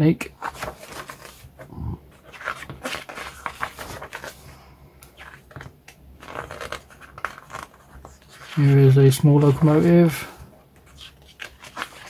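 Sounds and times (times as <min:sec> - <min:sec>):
book pages rustling: 0:00.4 - 0:12.0.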